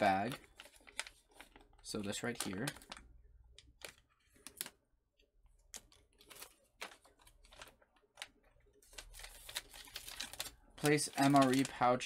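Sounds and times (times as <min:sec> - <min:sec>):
paper sheet rustling: 0:00.0 - 0:03.0, 0:05.6 - 0:12.0
plastic packaging rustling: 0:00.0 - 0:04.9, 0:05.5 - 0:12.0.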